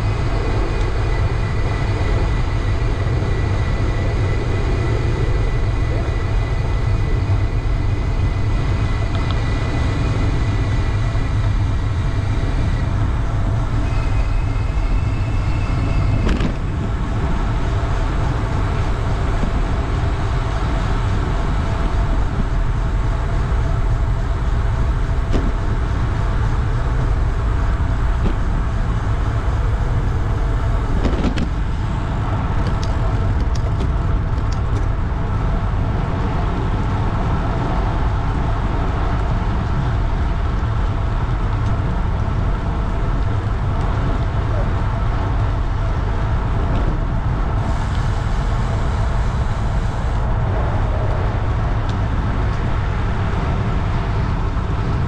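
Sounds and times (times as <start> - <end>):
faint high whine: 0.0 - 33.4
road traffic noise: 0.0 - 55.0
wind rumble on microphone: 0.0 - 55.0.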